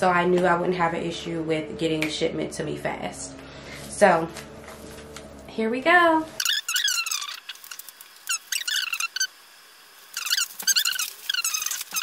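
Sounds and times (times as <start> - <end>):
plastic wrap squeaking: 6.4 - 12.0.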